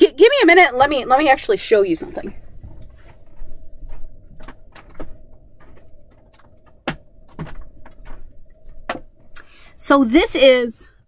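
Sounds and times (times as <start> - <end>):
faint steady hum: 0.0 - 11.0
knocks and clicks from handling objects: 2.6 - 9.2.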